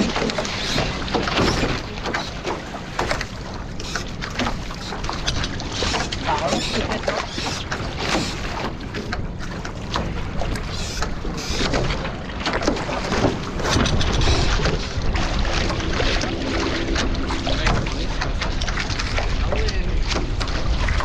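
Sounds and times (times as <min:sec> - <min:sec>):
water splashing along hulls: 0:00.0 - 0:21.0.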